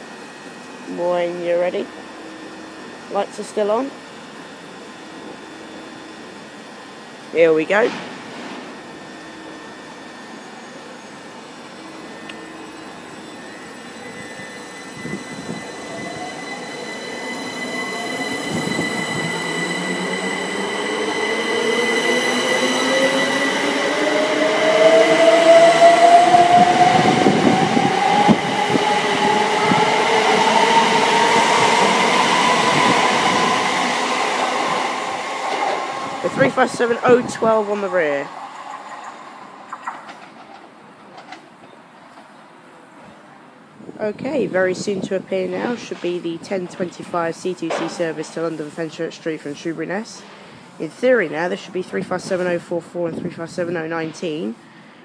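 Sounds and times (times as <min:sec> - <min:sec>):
electric train motors whining: 0:08.7 - 0:41.4
steady high tone: 0:08.8 - 0:39.6.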